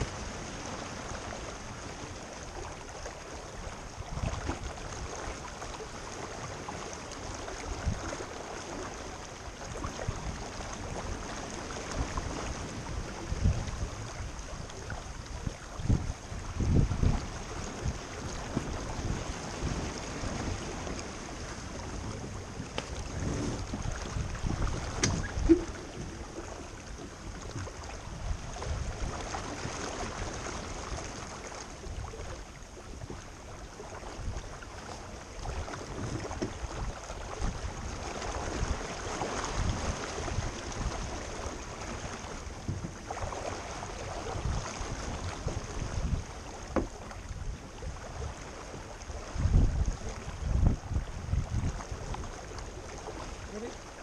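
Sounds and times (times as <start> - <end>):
water rushing along hull: 0.0 - 54.0
wind buffeting microphone: 3.5 - 31.2, 31.8 - 54.0
knocks from the boat: 24.9 - 26.1, 46.7 - 47.0.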